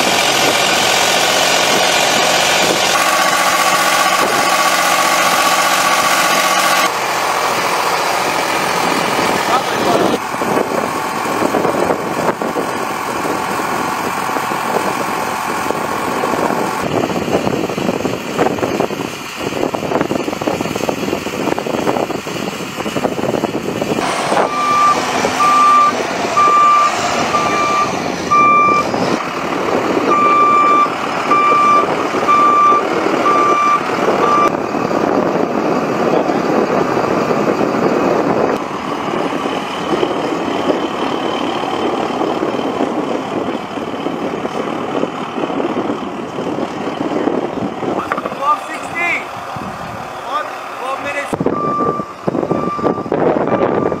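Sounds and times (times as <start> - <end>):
tow tractor engine running: 0.0 - 54.0
reversing alarm beeping: 24.0 - 28.9, 30.1 - 34.6, 51.5 - 54.0.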